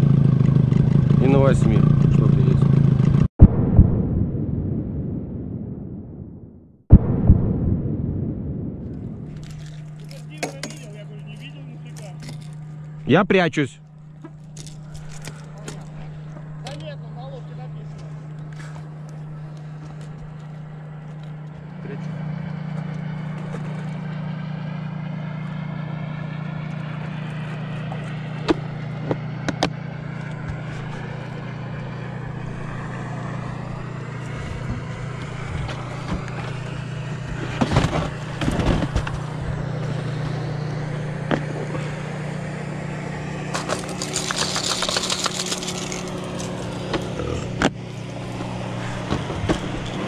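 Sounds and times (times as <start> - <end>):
outboard motor running: 0.0 - 3.3, 9.1 - 50.0
knocks and clatter: 34.6 - 40.4, 43.5 - 47.8.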